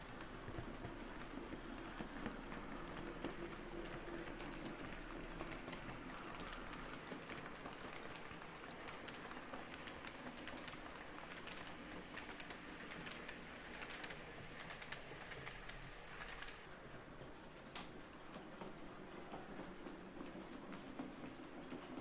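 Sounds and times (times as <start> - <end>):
model train wheels clicking: 0.0 - 16.9.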